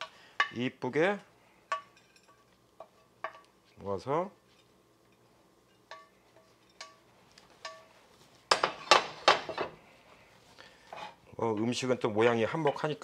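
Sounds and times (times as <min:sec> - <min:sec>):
spatula tapping metal pan: 0:05.8 - 0:06.1, 0:07.6 - 0:07.9.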